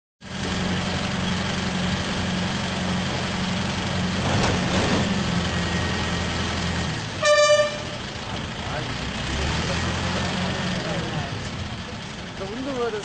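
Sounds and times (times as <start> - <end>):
diesel crane engine idling: 0.2 - 13.0.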